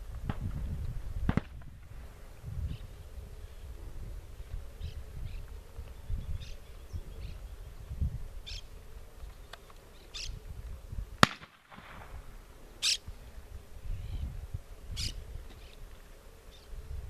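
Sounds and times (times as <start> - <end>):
shotgun shot: 11.2 - 12.2.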